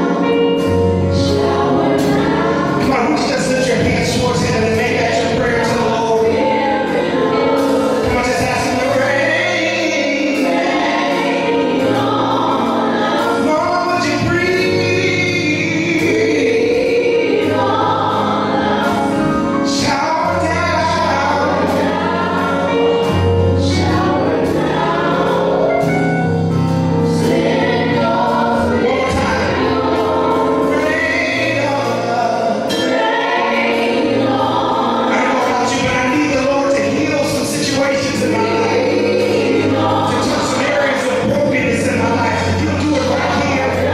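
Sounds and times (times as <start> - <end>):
women singing gospel together: 0.0 - 26.0, 26.9 - 43.9
keyboard with held bass notes: 0.0 - 43.9.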